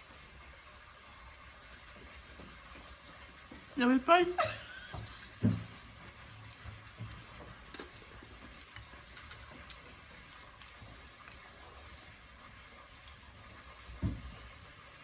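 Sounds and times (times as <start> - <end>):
chewing and utensil clicks: 6.0 - 11.5.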